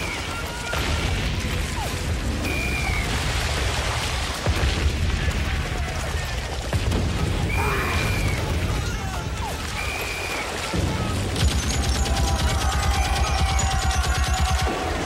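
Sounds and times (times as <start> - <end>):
sharp cracks: 0.0 - 15.0
shell explosions: 0.0 - 15.0.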